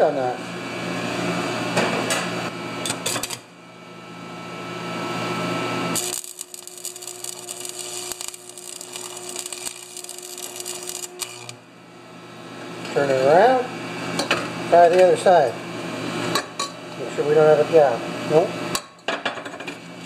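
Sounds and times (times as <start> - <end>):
welder hum: 2.4 - 16.5
welding arc crackling sizzle: 2.8 - 3.5, 5.1 - 11.8.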